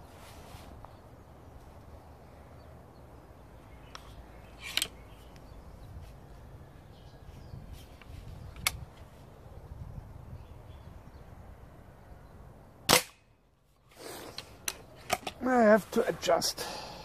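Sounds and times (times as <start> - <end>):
air rifle shots: 12.9 - 13.3.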